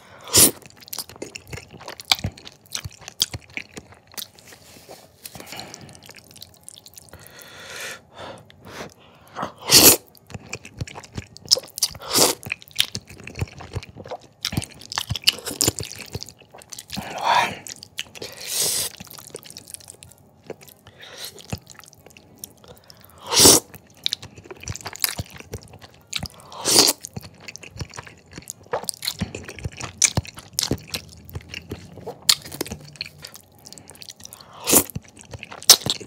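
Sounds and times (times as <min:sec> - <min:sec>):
wet chewing: 0:00.3 - 0:07.3, 0:09.8 - 0:36.0
person slurping noodles: 0:08.7 - 0:10.1, 0:17.0 - 0:19.0, 0:23.2 - 0:23.7.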